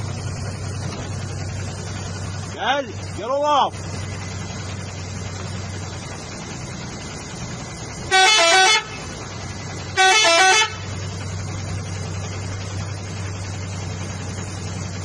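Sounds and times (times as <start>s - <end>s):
engine idling hum: 0.0s - 15.0s
vehicle horn honking: 8.1s - 9.0s, 9.9s - 10.9s.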